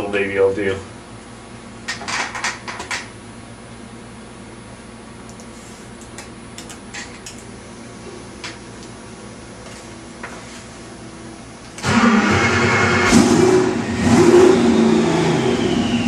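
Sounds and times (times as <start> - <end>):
steady low hum: 2.6 - 16.0
engine firing up and running loudly: 11.8 - 16.0.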